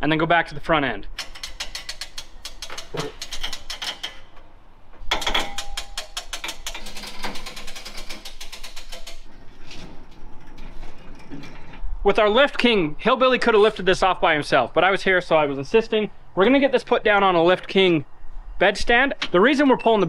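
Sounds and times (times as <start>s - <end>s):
lift ratcheting clicks: 1.2s - 4.4s, 5.1s - 9.3s.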